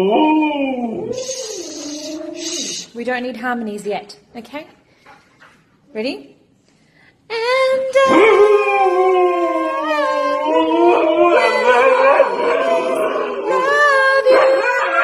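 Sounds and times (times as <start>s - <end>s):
dog howling: 0.0s - 2.9s, 8.0s - 15.0s.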